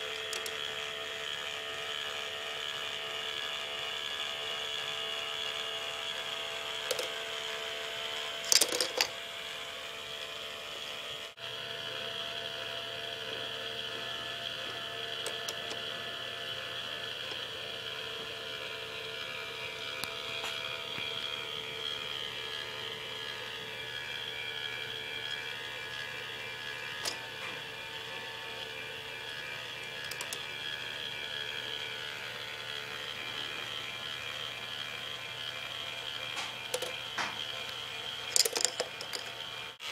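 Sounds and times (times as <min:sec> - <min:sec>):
motor and plastic gears whirring: 0:00.0 - 0:39.9
sharp plastic clacks: 0:00.1 - 0:00.6, 0:06.8 - 0:07.2, 0:08.5 - 0:09.1, 0:36.3 - 0:37.5.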